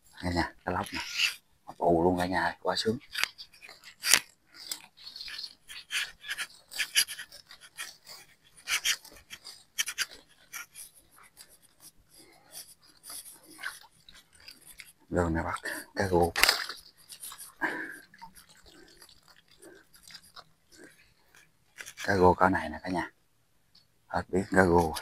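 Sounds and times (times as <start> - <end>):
water splashing: 2.8 - 22.1.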